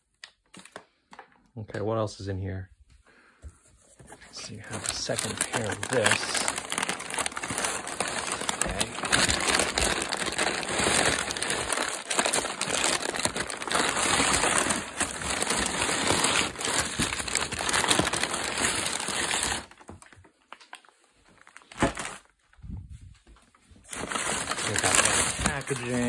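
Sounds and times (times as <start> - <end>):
packing paper crumpling: 4.2 - 19.9, 23.8 - 26.0.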